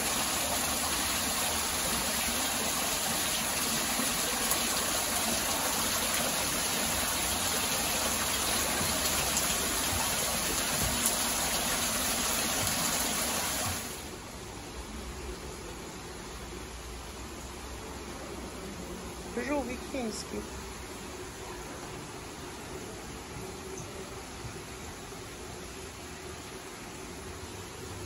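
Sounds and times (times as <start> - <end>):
water falling into a pond: 0.0 - 14.2.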